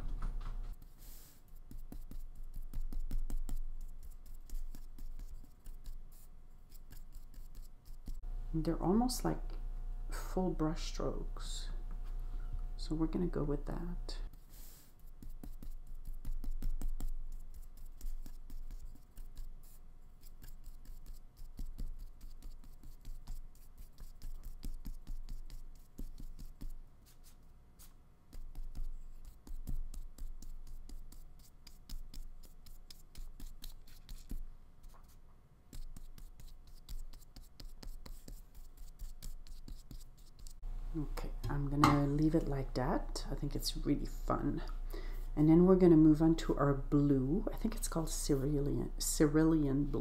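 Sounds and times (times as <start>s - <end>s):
paintbrush scratching on paper: 0.7s - 8.2s, 14.2s - 40.6s.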